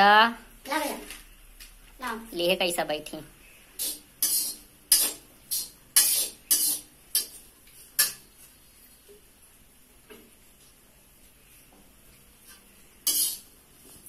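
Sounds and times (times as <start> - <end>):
metal ladle scraping a wok: 3.8 - 7.4, 13.0 - 13.5.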